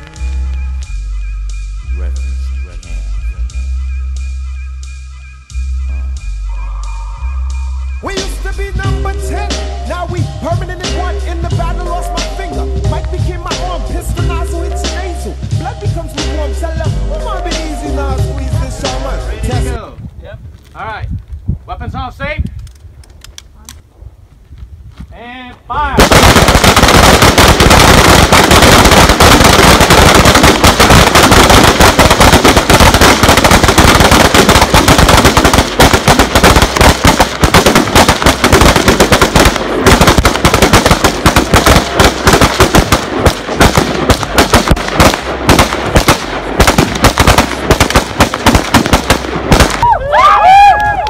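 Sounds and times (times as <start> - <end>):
rapid rifle gunfire: 26.0 - 49.9.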